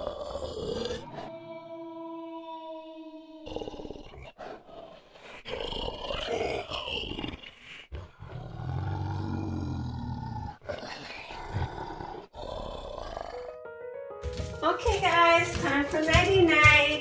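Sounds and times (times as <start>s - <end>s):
deep monster growls: 0.0s - 1.3s, 3.4s - 13.6s.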